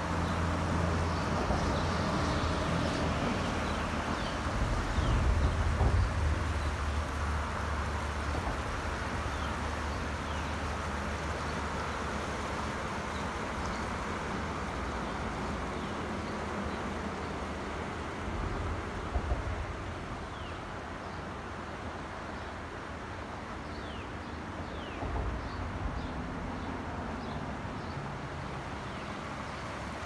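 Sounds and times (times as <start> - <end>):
rushing river water: 0.0 - 30.0.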